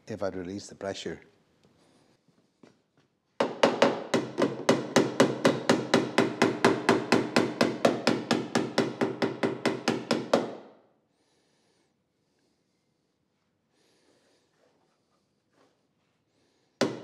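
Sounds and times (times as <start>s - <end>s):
hammer tapping sheet metal: 3.4s - 10.6s.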